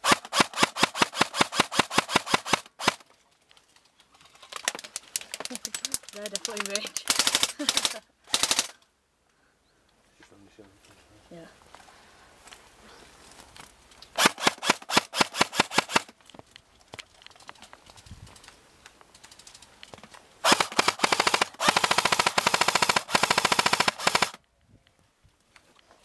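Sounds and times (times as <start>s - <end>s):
airsoft rifle firing: 0.0s - 3.0s, 6.4s - 8.8s, 14.2s - 16.1s, 20.4s - 24.4s.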